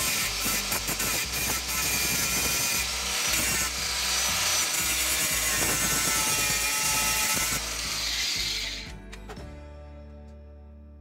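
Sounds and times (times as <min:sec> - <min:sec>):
angle grinder grinding metal: 0:00.0 - 0:09.0.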